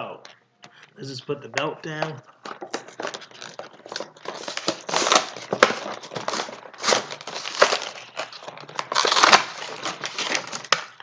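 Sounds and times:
plastic packaging crinkling: 2.3 - 11.0.

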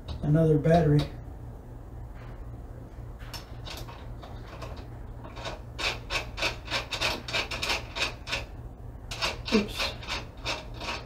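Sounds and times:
low steady hum: 0.0 - 11.0
ratchet wrench rasping: 3.7 - 8.5, 9.1 - 11.0.

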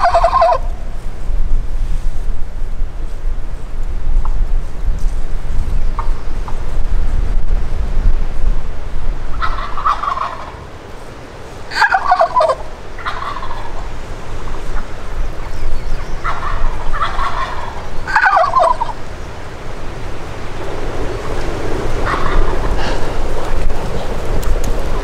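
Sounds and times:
turkeys gobbling: 0.0 - 0.8, 9.3 - 10.7, 11.7 - 19.0, 22.0 - 23.6
wind rumble on microphone: 0.0 - 25.0.

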